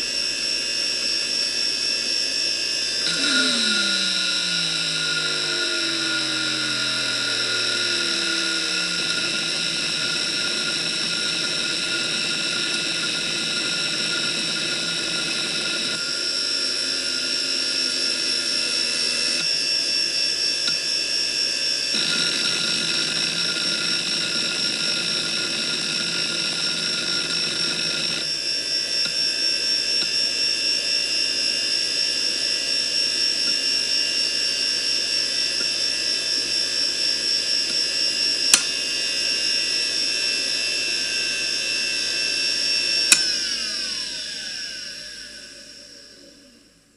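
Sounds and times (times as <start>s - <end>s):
high-pitched drive whine: 0.0s - 46.8s
hard drive seeking chatter: 3.0s - 16.0s
hard drive idling: 3.0s - 18.6s, 22.0s - 28.3s.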